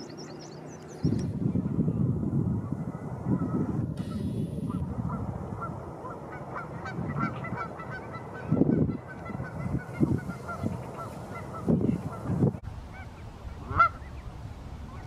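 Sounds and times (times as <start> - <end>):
wind buffeting microphone: 0.0 - 15.0
geese honking: 3.3 - 14.2.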